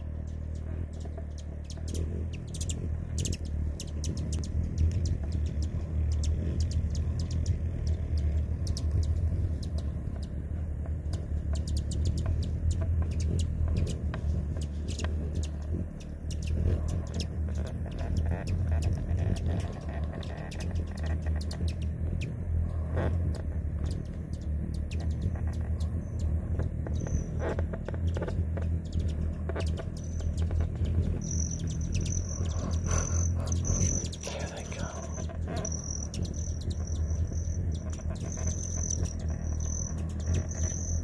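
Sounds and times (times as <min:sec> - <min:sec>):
hummingbird wings humming: 0:00.0 - 0:41.0.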